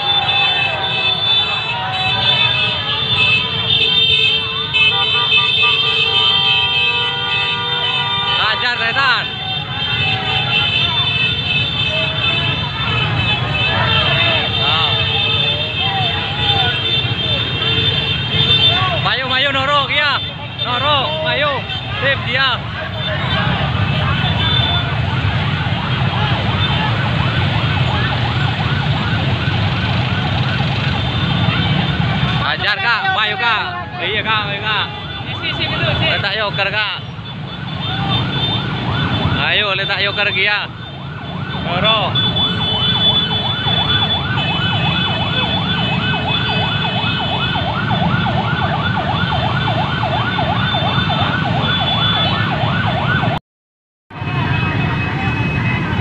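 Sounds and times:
siren yelping: 18.4s - 53.4s.

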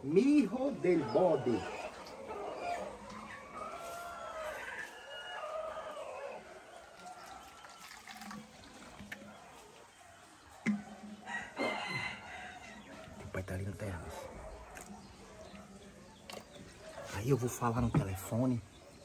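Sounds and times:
rooster crowing: 0.9s - 7.6s, 11.2s - 13.1s
liquid pouring into plastic bottles: 6.7s - 11.3s.

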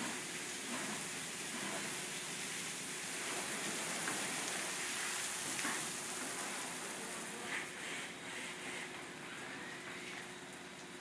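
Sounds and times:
water falling on car and floor: 0.0s - 7.4s, 9.8s - 11.0s
car wash water jets spraying: 0.0s - 11.0s.

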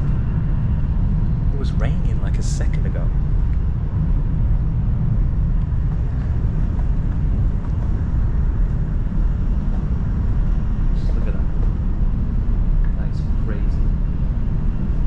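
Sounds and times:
train carriage rumble: 0.0s - 15.0s.

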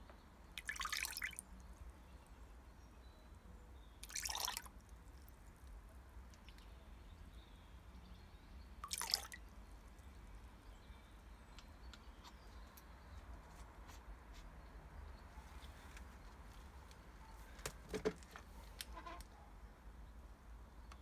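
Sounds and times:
water splashing in plastic tub: 0.5s - 1.5s, 4.0s - 5.3s, 8.8s - 9.5s.

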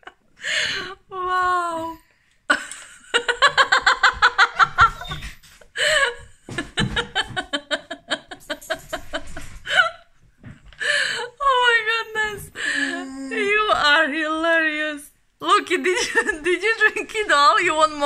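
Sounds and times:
person laughing: 2.5s - 10.0s.

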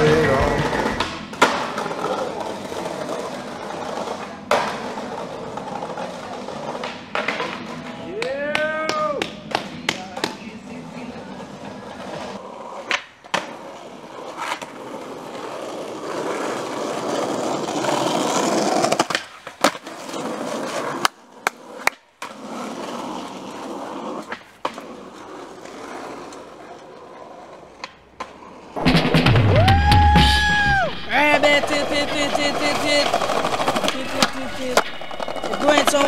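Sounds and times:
skateboard wheels rolling on asphalt: 0.0s - 36.0s
skateboard tail pops and landings: 1.0s - 1.9s
loud long shout: 29.5s - 33.0s.

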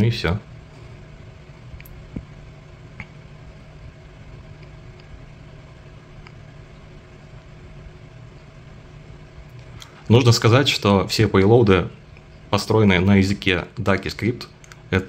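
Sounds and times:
low hum: 0.0s - 15.0s
faint clicks: 1.8s - 2.3s, 14.6s - 14.9s.

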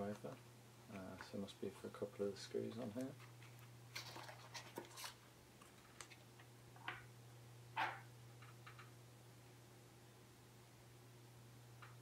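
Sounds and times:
soft handling taps and rustles: 0.0s - 1.5s.

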